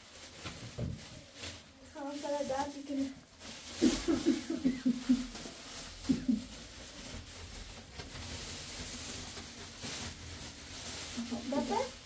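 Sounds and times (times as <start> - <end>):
plastic sheet rustling: 0.0 - 12.0.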